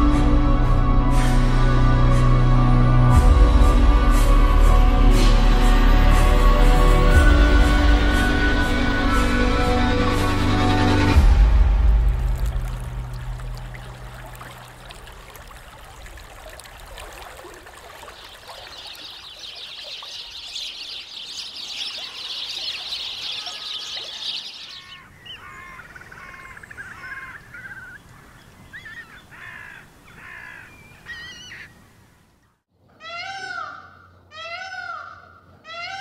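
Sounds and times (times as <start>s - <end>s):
birds chirping in chorus: 18.0s - 32.1s
peacock calling loudly: 33.0s - 36.0s.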